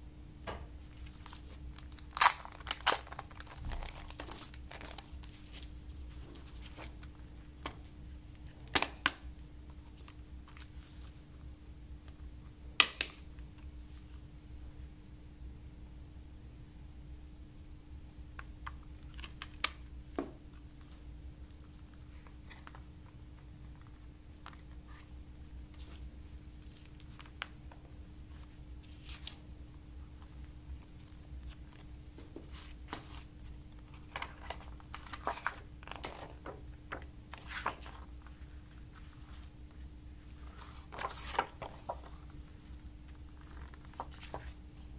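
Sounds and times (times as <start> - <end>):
paper rustling and crinkling: 0.8 - 9.0, 28.3 - 29.5, 30.1 - 44.9.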